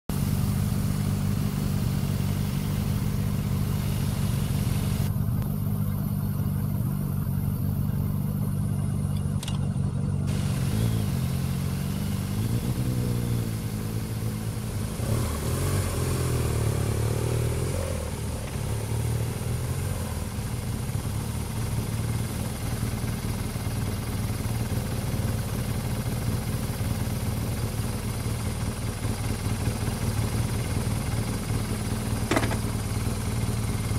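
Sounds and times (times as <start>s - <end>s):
motorcycle engines revving: 0.1s - 25.3s, 30.1s - 33.9s.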